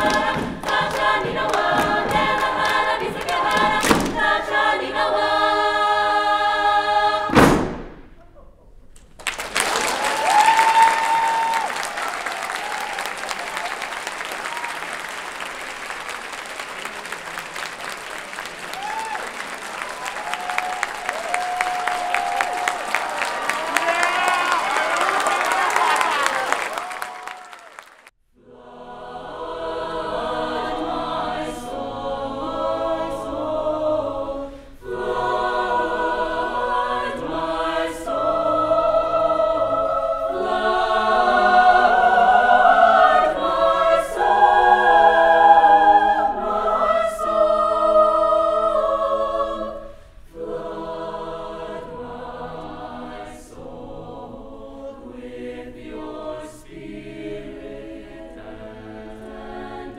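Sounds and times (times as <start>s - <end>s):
a cappella choir singing: 0.0s - 8.0s, 28.4s - 59.9s.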